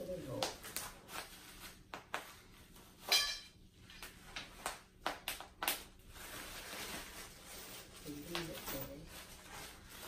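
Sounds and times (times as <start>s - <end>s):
bubble wrap popping: 4.0s - 7.4s.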